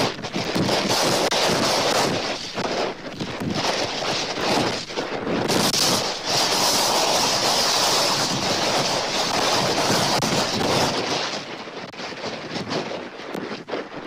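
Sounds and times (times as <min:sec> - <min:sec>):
strong wind buffeting microphone: 0:00.0 - 0:14.0.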